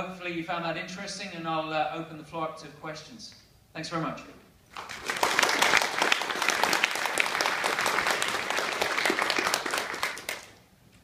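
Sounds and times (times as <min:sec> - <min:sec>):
audience applauding: 0:04.7 - 0:10.6.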